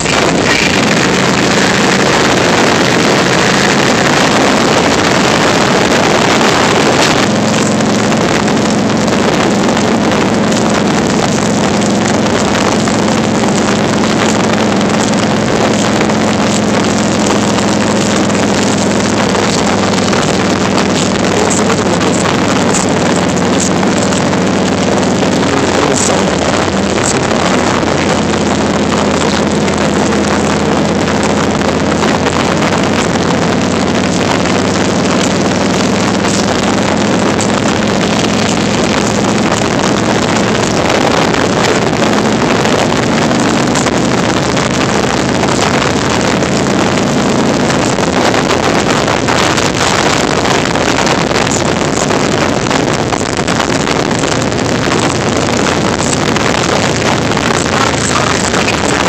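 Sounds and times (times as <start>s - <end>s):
motorcycle engine running: 0.0s - 59.0s
wind on microphone: 0.0s - 59.0s.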